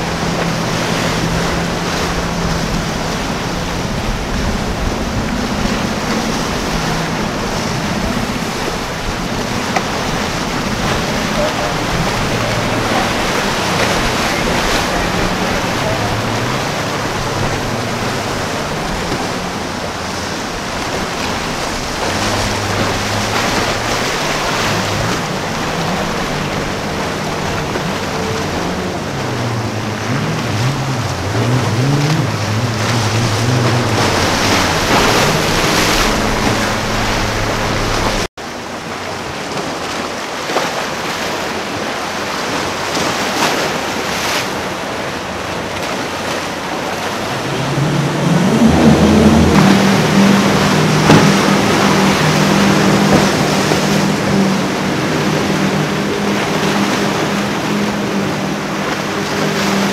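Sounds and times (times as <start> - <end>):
wind buffeting microphone: 0.0 - 38.3
outboard boat engines: 0.0 - 59.9
surf: 0.0 - 59.9.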